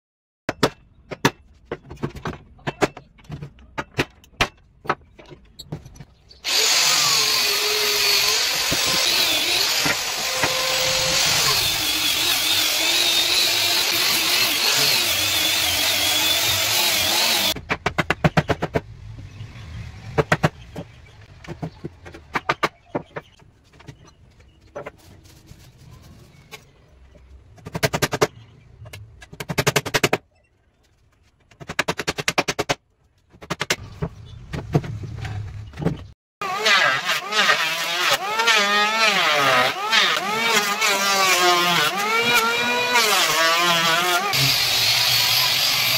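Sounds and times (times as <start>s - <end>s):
angle grinder sanding wood: 6.4s - 17.6s, 36.4s - 45.9s.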